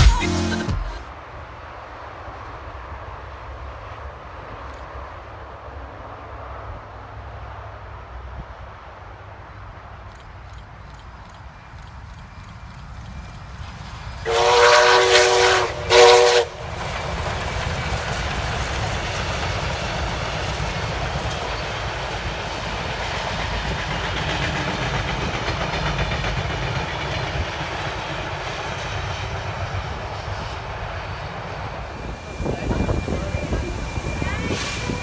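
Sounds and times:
train wheels on rails: 0:00.0 - 0:35.0
steam locomotive whistle: 0:14.2 - 0:16.6, 0:31.9 - 0:35.0.

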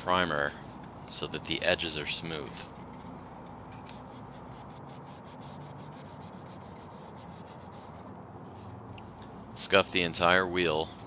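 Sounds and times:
sandpaper sanding metal: 0:03.9 - 0:08.7, 0:09.4 - 0:11.0.

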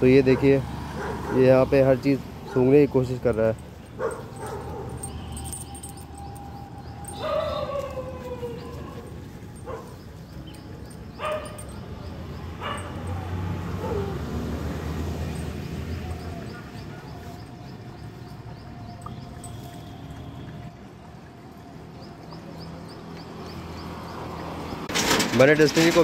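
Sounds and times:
dog calling: 0:00.3 - 0:01.5, 0:03.9 - 0:11.8, 0:12.6 - 0:14.2.

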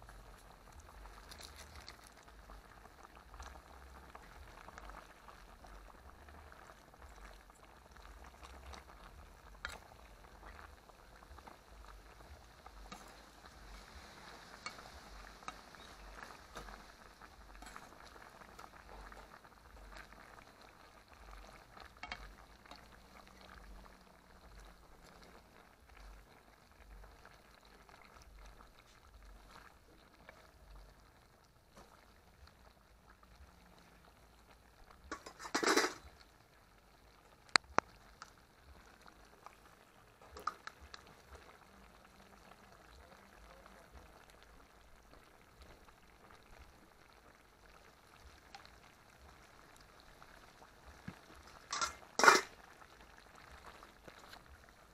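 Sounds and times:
gravy bubbling in a pot: 0:00.0 - 0:54.9
metal spoon scraping a pot: 0:35.1 - 0:36.0, 0:51.7 - 0:52.5.

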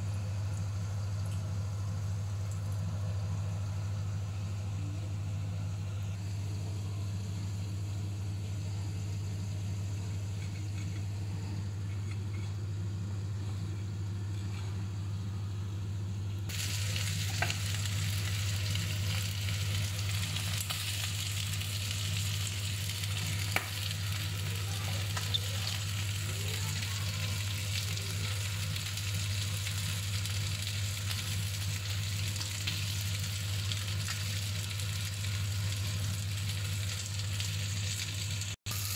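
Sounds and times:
loud sizzle with sharp pops: 0:00.0 - 0:15.3, 0:16.3 - 0:38.9
steady low hum: 0:00.0 - 0:38.9
meat frying in a grill pan: 0:09.0 - 0:11.0, 0:16.5 - 0:38.9.

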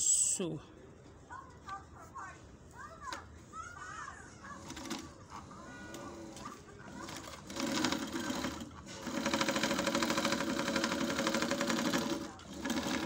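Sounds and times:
overlock sewing machine running: 0:04.6 - 0:05.0, 0:05.9 - 0:13.0.

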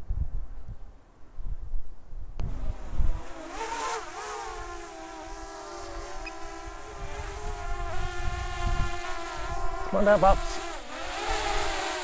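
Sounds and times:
wind rumbling on microphone: 0:00.0 - 0:12.0
drone propellers whining: 0:02.5 - 0:12.0.

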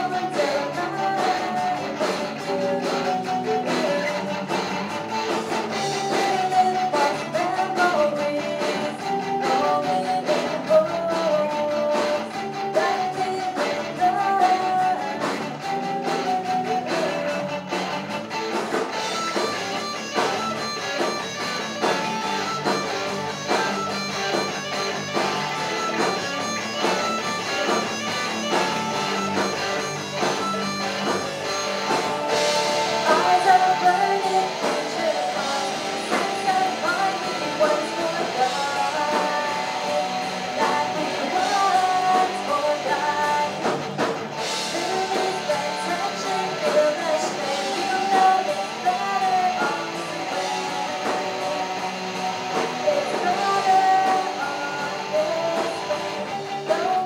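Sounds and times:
woman singing: 0:00.0 - 0:04.8, 0:05.9 - 0:17.7, 0:33.0 - 0:43.8, 0:44.6 - 0:50.3, 0:52.7 - 0:57.0
drum kit: 0:00.0 - 0:57.0
electric bass: 0:00.0 - 0:57.0
electric guitars: 0:00.0 - 0:57.0.

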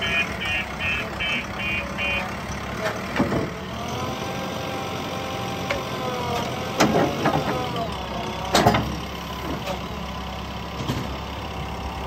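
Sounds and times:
electronic alarm beeping: 0:00.0 - 0:02.3
diesel engine running: 0:00.0 - 0:12.0.

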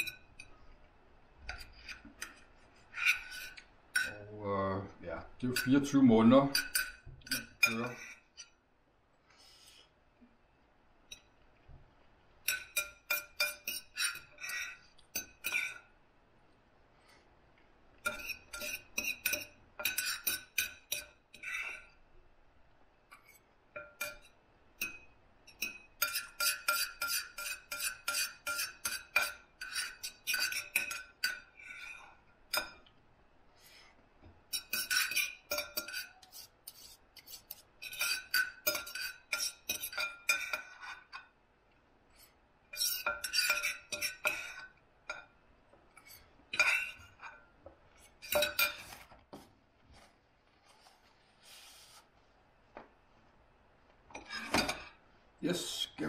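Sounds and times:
cutlery clinking on a plate: 0:05.5 - 0:08.6, 0:12.4 - 0:15.9, 0:18.0 - 0:21.9, 0:23.2 - 0:32.9, 0:34.5 - 0:41.4, 0:42.8 - 0:45.3, 0:46.0 - 0:47.5, 0:48.2 - 0:49.1, 0:54.1 - 0:55.0.

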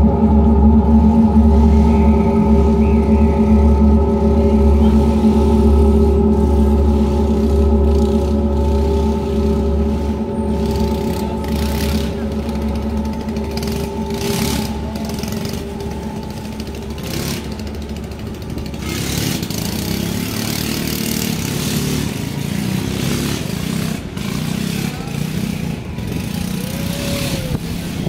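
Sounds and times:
murmur of voices: 0:00.0 - 0:28.0
street traffic: 0:00.0 - 0:28.0.

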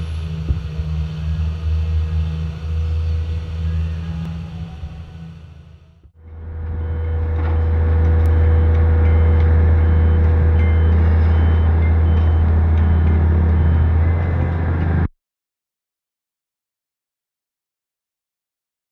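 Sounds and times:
engine humming: 0:00.0 - 0:15.1
faint high beeps: 0:08.4 - 0:14.3.

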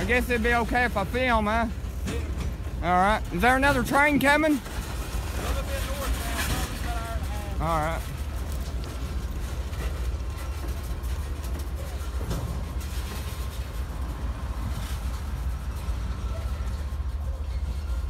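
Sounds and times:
freight train low rumble: 0:00.0 - 0:18.0.

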